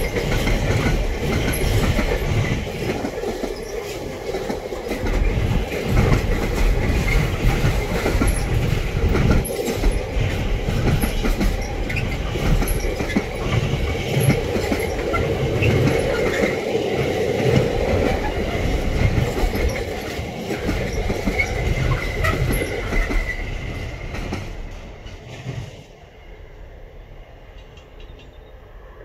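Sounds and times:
train wheels rumbling on rails: 0.0 - 29.0
train wheel squeal: 3.2 - 4.1, 4.8 - 16.6, 18.0 - 25.4, 27.6 - 29.0.

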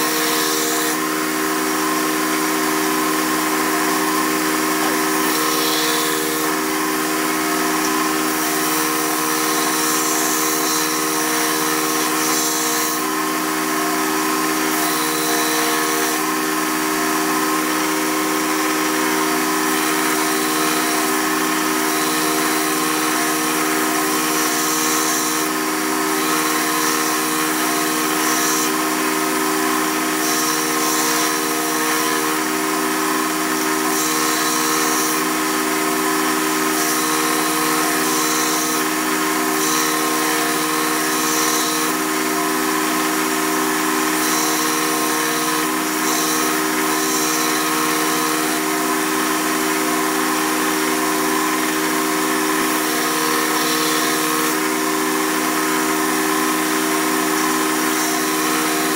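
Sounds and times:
belt grinder running: 0.0 - 58.9
blade grinding hiss: 3.9 - 13.0, 26.2 - 29.0.

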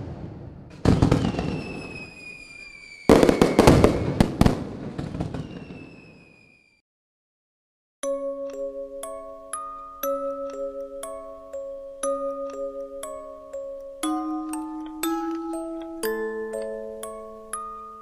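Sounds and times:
fireworks bangs and crackles: 0.0 - 6.7
falling firework whistle: 0.9 - 6.8.

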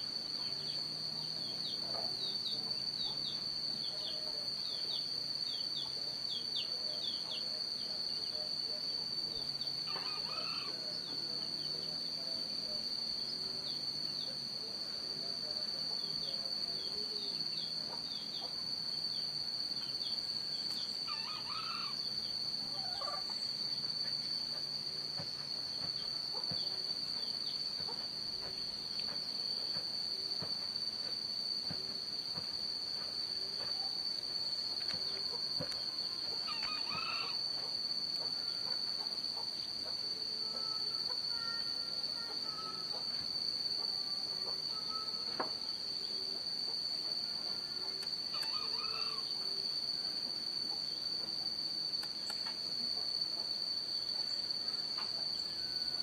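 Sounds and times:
high-pitched insect trill: 0.0 - 56.0
faint bird calls: 9.8 - 10.8, 20.7 - 22.1, 36.4 - 37.4.

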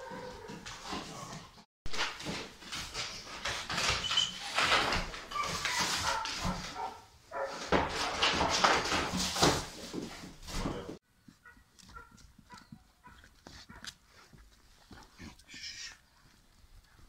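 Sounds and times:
dog whining: 0.0 - 0.6, 5.3 - 6.2
dog scuffling on wooden floor: 0.0 - 11.0.

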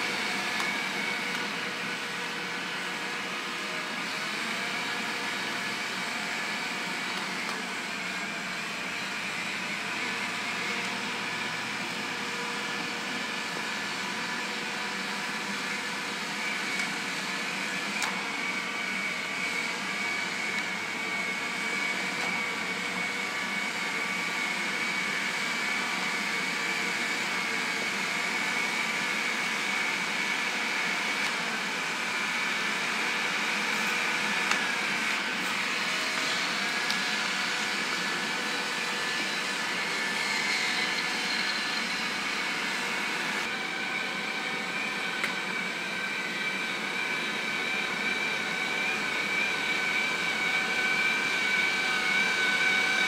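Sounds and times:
electric motor whir: 0.0 - 53.0.

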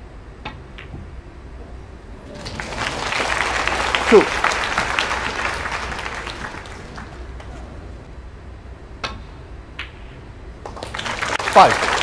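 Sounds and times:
audience applause: 2.4 - 7.5, 10.7 - 12.0.

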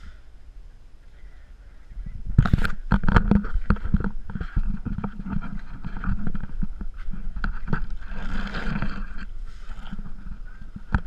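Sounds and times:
camera knocking and scraping: 2.3 - 11.0.

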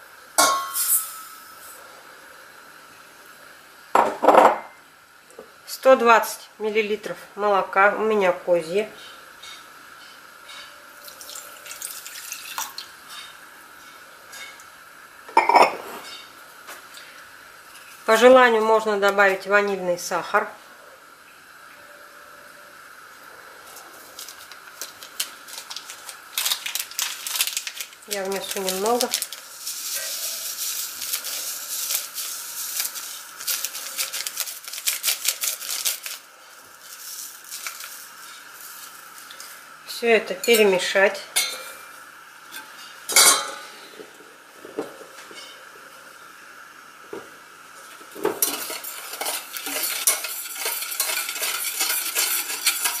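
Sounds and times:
sugar trickling: 10.5 - 13.4, 23.7 - 39.7
milk trickling into metal pot: 11.0 - 12.9
paper sachet crinkling: 24.0 - 39.4.

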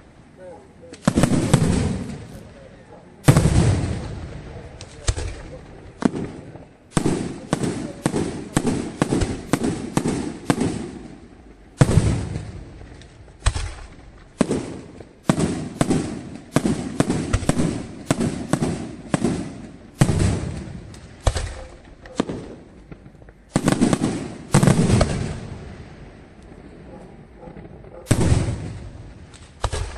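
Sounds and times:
firework shells bursting: 0.9 - 2.6, 3.2 - 25.8, 28.1 - 29.9.

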